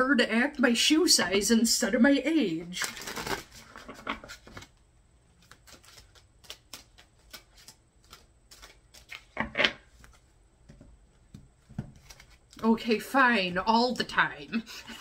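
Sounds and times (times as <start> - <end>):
cards being shuffled: 2.8 - 12.8.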